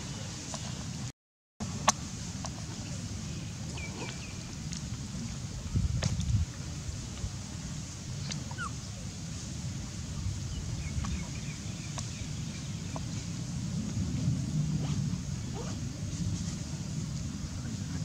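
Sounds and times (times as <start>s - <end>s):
baby monkeys squeaking: 8.5s - 8.8s.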